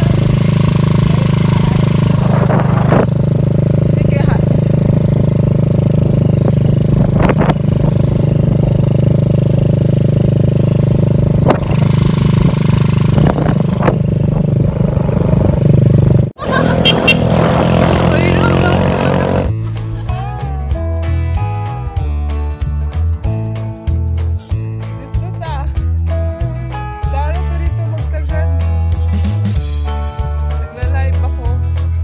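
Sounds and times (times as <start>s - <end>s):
small motorcycle engine running: 0.0s - 19.5s.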